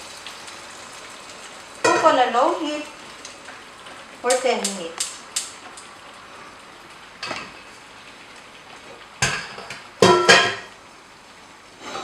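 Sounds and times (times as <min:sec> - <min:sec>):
egg sizzling: 0:00.0 - 0:12.0
frying pan clanking: 0:01.8 - 0:02.3, 0:07.2 - 0:07.6, 0:09.2 - 0:10.8.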